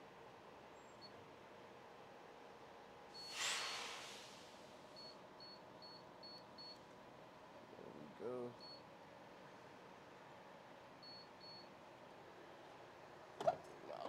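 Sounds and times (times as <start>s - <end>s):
short hiss: 3.2s - 4.8s.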